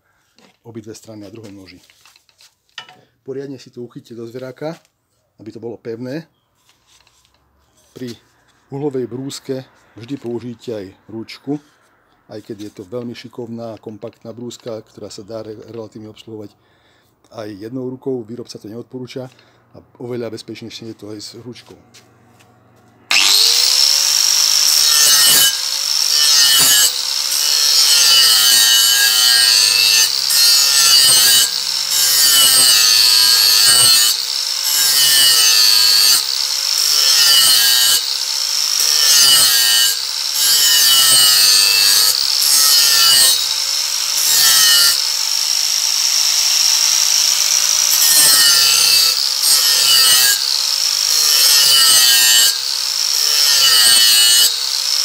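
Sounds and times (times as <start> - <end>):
angle grinder grinding steel: 23.1 - 55.0.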